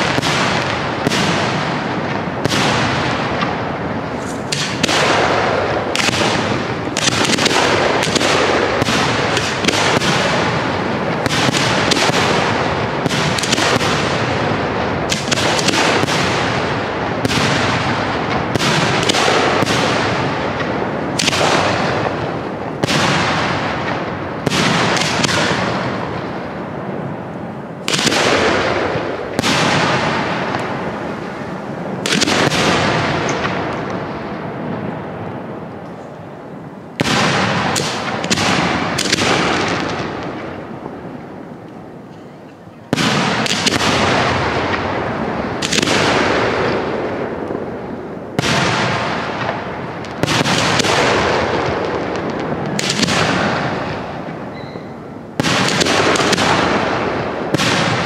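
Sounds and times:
firework shells bursting: 0.0 - 26.4.

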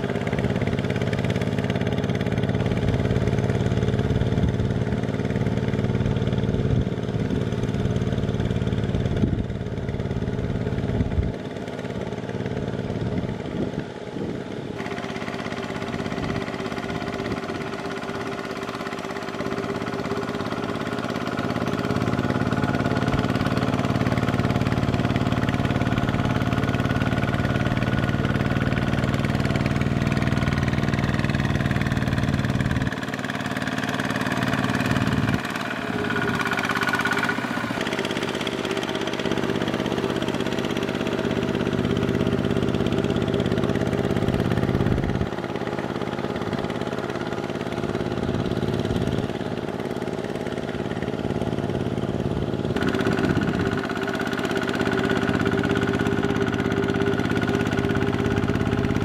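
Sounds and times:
diesel engine running under load: 0.0 - 59.0
wheels churning through mud: 14.8 - 59.0.

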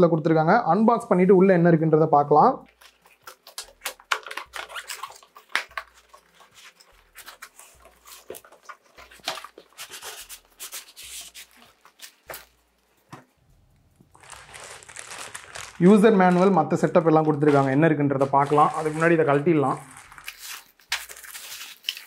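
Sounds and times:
plastic wrap rustling: 2.6 - 22.0
tape peeling from cardboard: 2.7 - 12.6, 17.4 - 22.0
cardboard scraping: 15.9 - 22.0.

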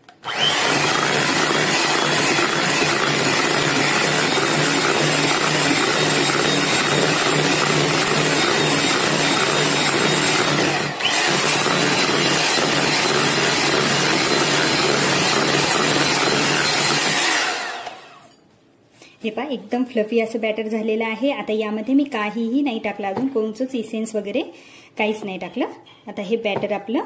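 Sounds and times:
electric hand mixer whipping: 0.0 - 18.2.

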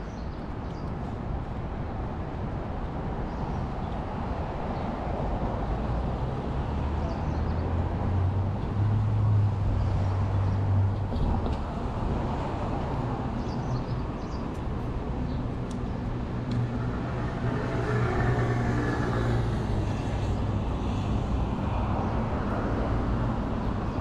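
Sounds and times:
road noise: 0.0 - 24.0
passing vehicle engine drone: 16.3 - 23.4.

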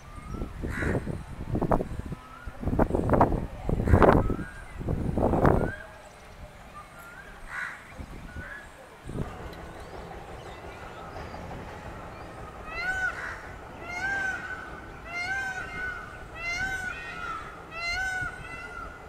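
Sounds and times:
peafowl calling: 9.4 - 19.0.

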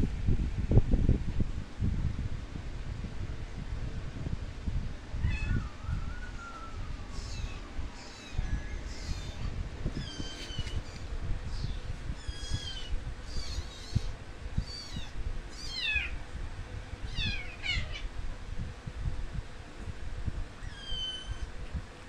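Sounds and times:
kittens mewing: 7.1 - 10.8, 11.6 - 16.2.

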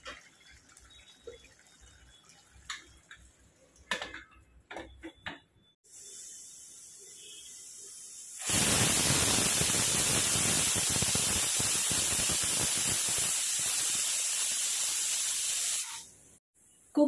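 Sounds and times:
pressure cooker steam hissing: 5.8 - 16.1.

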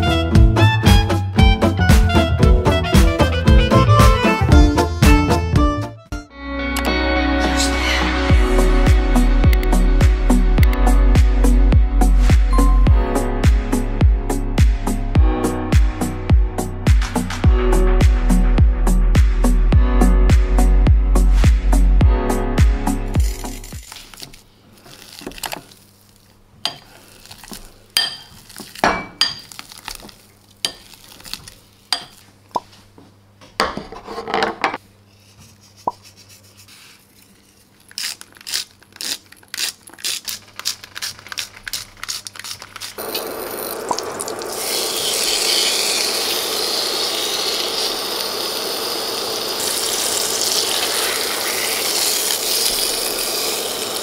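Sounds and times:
steak sizzling in a frying pan: 43.0 - 54.0
potato masher in a bowl: 44.5 - 54.0.

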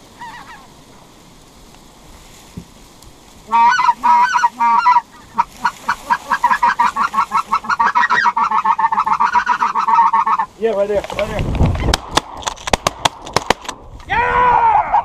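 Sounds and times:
goose honking: 0.2 - 0.7, 3.5 - 10.6.

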